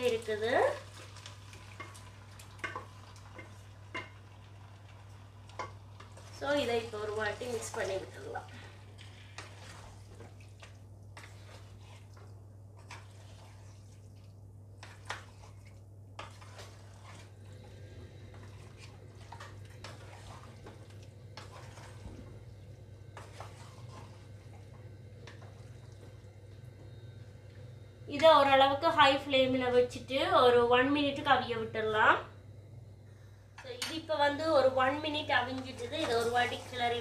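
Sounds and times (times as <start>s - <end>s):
steady low hum: 0.0s - 37.0s
soft wet squelching: 5.9s - 27.6s.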